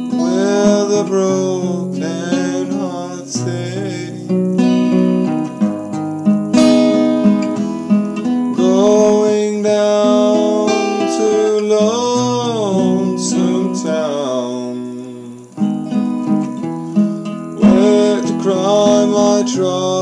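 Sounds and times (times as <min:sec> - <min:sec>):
man singing wordless line: 0:00.0 - 0:05.0, 0:08.5 - 0:15.7, 0:17.5 - 0:20.0
acoustic guitar strumming: 0:00.0 - 0:20.0.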